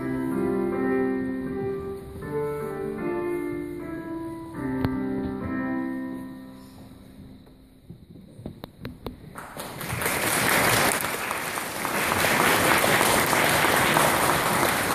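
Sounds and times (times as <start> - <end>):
electronic keyboard chord: 0.0 - 7.7
audience applause: 9.4 - 14.9.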